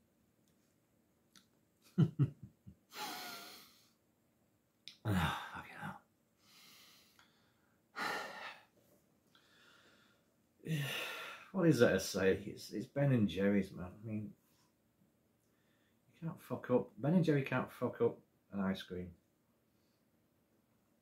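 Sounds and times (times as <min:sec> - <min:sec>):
man breathing loudly: 0:02.9 - 0:03.9, 0:06.4 - 0:08.7, 0:09.4 - 0:11.5
man making wordless voice sounds: 0:04.9 - 0:06.0, 0:11.5 - 0:14.3, 0:16.2 - 0:19.1.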